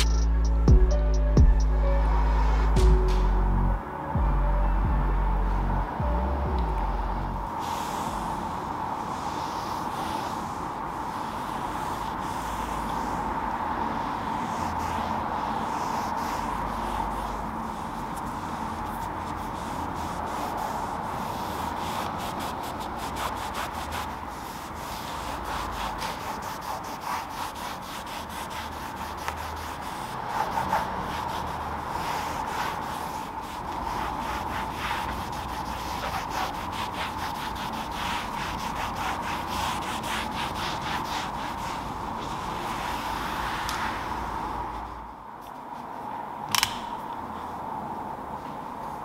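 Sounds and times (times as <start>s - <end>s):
cloth wiping plastic trim: 9.0s - 46.7s.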